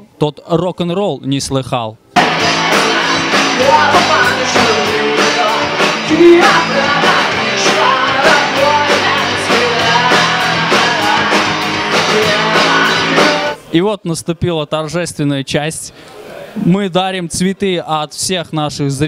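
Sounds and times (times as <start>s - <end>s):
rock band playing: 2.2s - 13.7s
woman singing: 2.4s - 13.6s.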